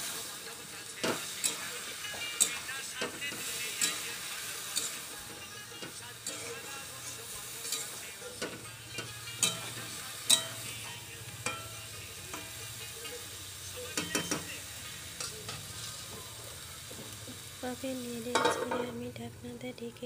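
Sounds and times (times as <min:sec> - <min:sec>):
vegetables sizzling in oil: 0:00.0 - 0:20.0.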